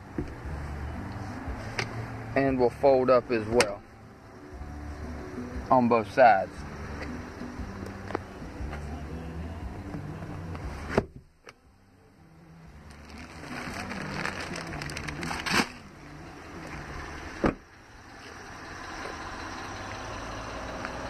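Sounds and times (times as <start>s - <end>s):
engine idling hum: 0.0s - 21.0s
car door shutting: 10.8s - 11.6s, 17.3s - 17.6s
rear seat latching: 10.8s - 11.6s, 17.4s - 17.6s
car door latch opening: 17.4s - 17.6s.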